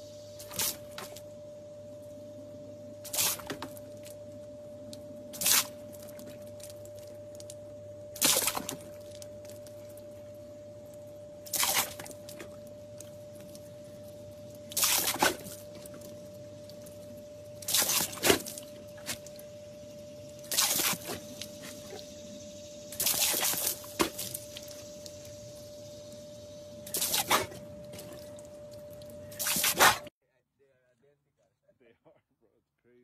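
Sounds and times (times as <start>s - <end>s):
dog blowing air through lips: 26.9s - 27.6s.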